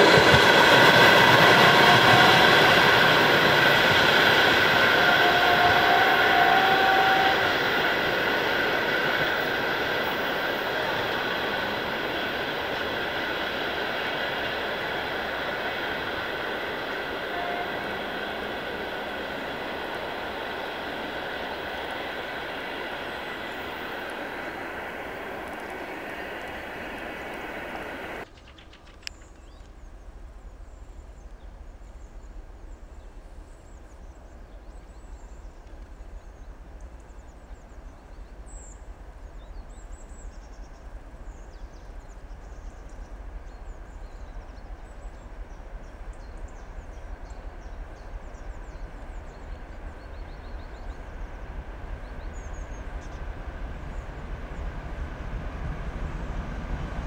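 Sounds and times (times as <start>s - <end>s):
approaching diesel train rumble: 0.0s - 28.3s, 29.8s - 57.0s
birds chirping: 0.0s - 29.6s
train wheels rolling on track: 0.0s - 29.7s, 39.1s - 57.0s.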